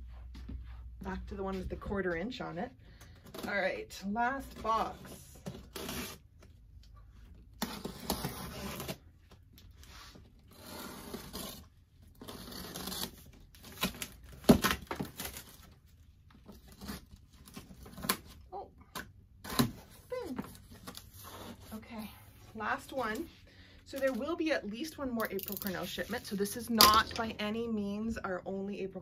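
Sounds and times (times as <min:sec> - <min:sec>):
packing tape being slit and ripped: 0:05.4 - 0:06.4, 0:07.5 - 0:09.1, 0:10.4 - 0:15.7, 0:19.4 - 0:19.9.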